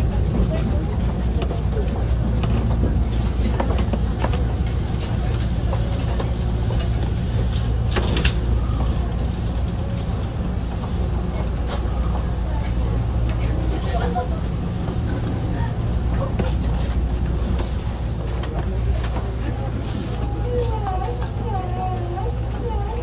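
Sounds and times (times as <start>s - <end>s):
electric train rumbling: 0.0s - 23.0s.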